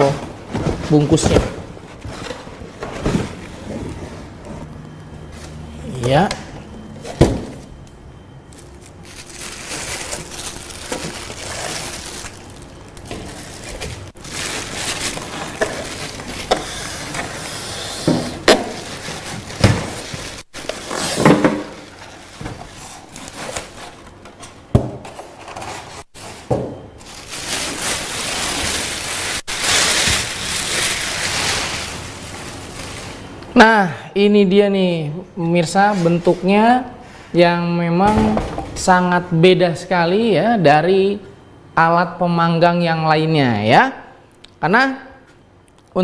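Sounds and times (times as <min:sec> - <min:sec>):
plastic wrap crinkling: 0:08.5 - 0:17.5, 0:18.4 - 0:24.1, 0:27.0 - 0:33.4
polystyrene foam squeaking: 0:08.6 - 0:23.9, 0:27.0 - 0:33.2.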